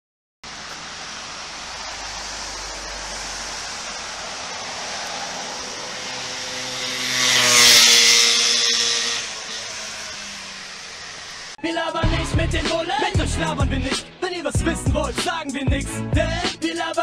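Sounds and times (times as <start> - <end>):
scooter engine passing: 0.5 - 12.1.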